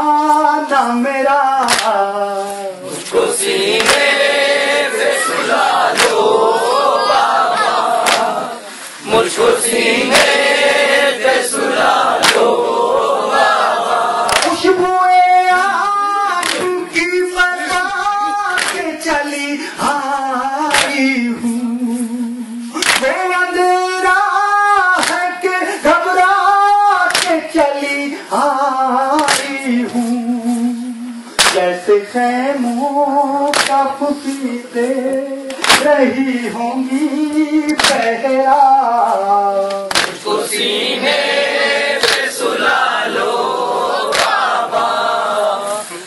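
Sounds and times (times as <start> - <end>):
chest beating slaps: 1.6 - 2.0, 3.8 - 4.1, 5.8 - 6.3, 8.0 - 8.4, 12.2 - 12.5, 14.3 - 14.6, 18.6 - 18.9, 20.7 - 21.0, 22.8 - 23.2, 29.2 - 29.6, 31.4 - 31.7, 33.5 - 33.8, 35.5 - 36.0, 37.8 - 38.1, 39.8 - 40.2, 42.0 - 42.3, 44.1 - 44.4.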